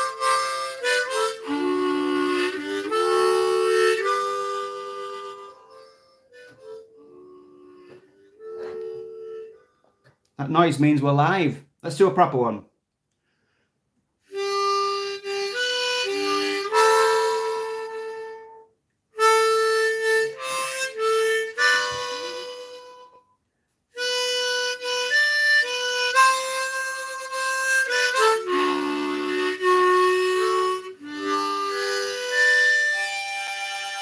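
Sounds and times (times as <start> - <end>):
harmonica playing a tune: 0.0 - 10.1, 14.2 - 34.0.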